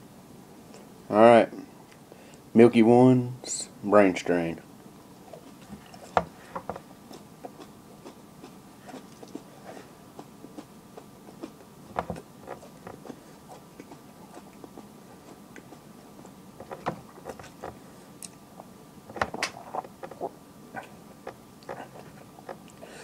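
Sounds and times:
person chewing crunchily: 5.2s - 18.7s.

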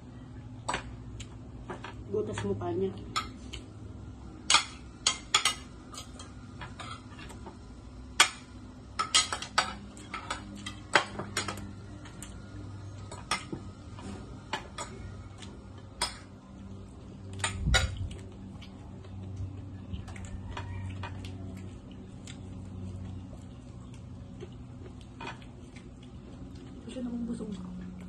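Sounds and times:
low steady hum: 0.0s - 28.0s
spoons clinking on plates: 4.5s - 7.1s, 9.0s - 11.6s.

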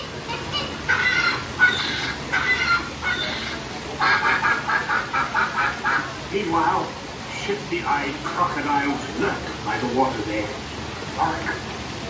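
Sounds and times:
animatronic bird squawks and clucks: 0.3s - 6.2s.

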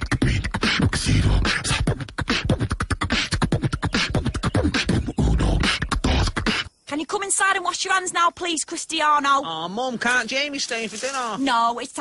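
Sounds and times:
high-pitched beatboxing: 0.0s - 6.8s.

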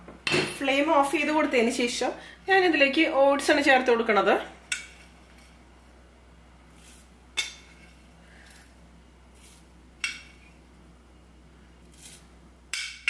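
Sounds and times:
oats rustling: 6.7s - 7.2s, 9.3s - 9.7s.

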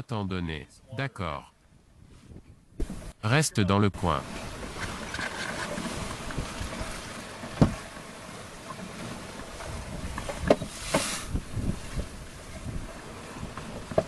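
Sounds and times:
wind and water noise: 0.0s - 14.0s
rushing hiss: 10.7s - 11.4s.

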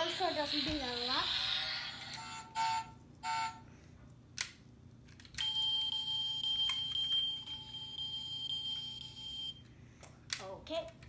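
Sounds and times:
toy car electronic tone: 2.1s - 3.6s.

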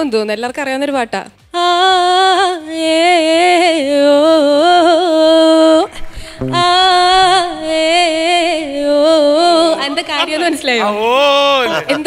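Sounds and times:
woman singing: 1.5s - 10.9s.

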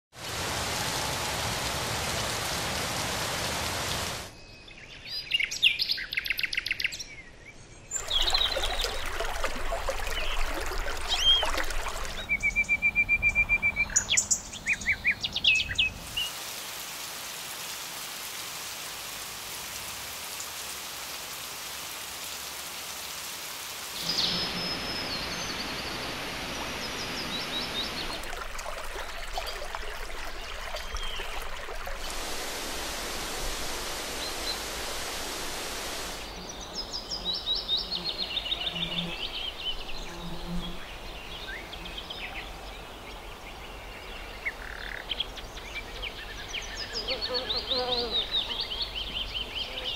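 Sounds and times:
rain rushing: 0.1s - 4.3s, 8.0s - 12.3s, 16.0s - 36.4s
running water: 0.1s - 4.3s, 7.9s - 12.8s, 16.0s - 36.4s
songbirds singing trills: 10.1s - 16.3s, 36.2s - 49.9s
birds calling: 24.0s - 37.0s.

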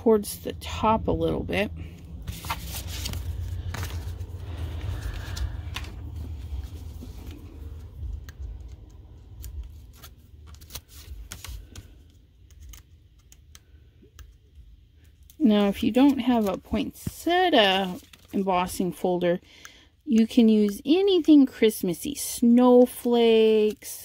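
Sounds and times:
paper rustling: 1.8s - 13.4s, 15.4s - 18.9s.

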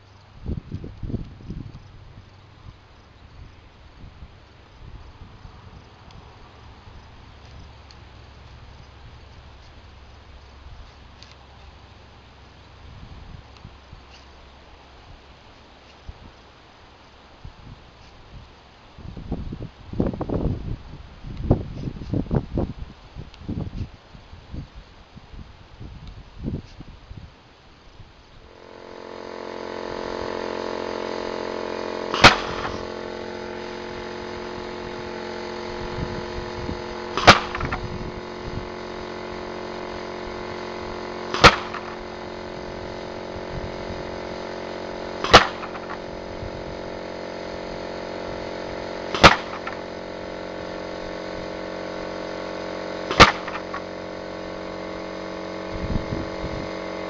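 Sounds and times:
machine hum: 27.5s - 57.0s
pneumatic cannon firing shots: 28.5s - 57.0s.

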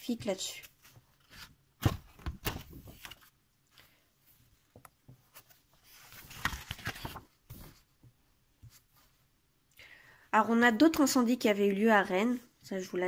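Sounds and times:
book pages rustling: 0.2s - 9.2s.

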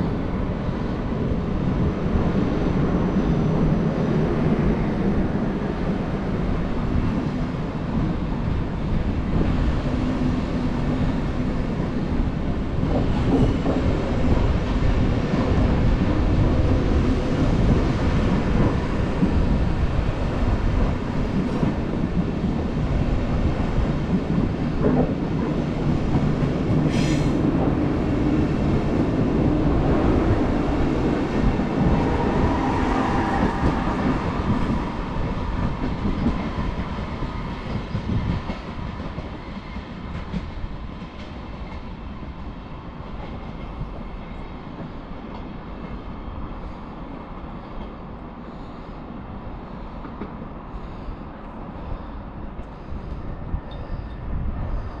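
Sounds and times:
train wheels clattering over rails: 11.7s - 42.0s.

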